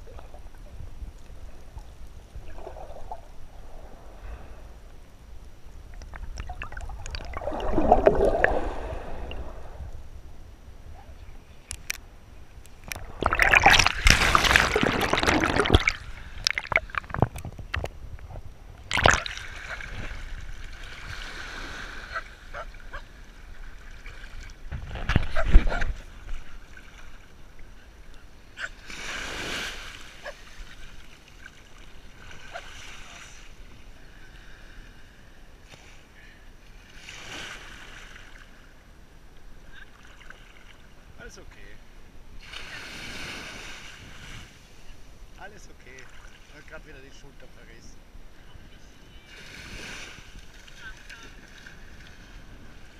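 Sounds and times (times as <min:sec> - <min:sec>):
seawater splashing: 0:05.9 - 0:09.9, 0:12.8 - 0:17.8, 0:18.9 - 0:24.6.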